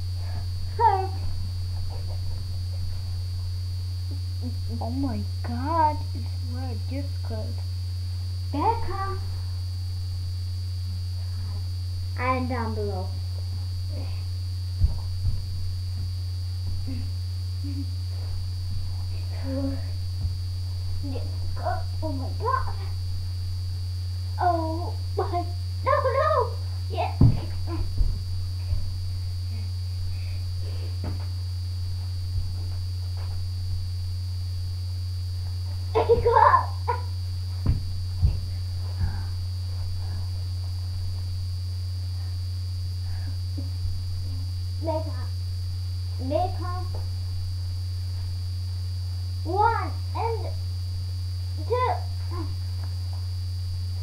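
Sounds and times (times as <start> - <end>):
electrical mains hum: 0.0 - 54.0
bodies thumping on floor: 0.4 - 3.6, 14.7 - 17.2, 18.0 - 21.6, 27.0 - 34.0, 35.4 - 41.4
dull thumps on floor: 14.8 - 15.7, 27.2 - 29.0, 37.5 - 38.6.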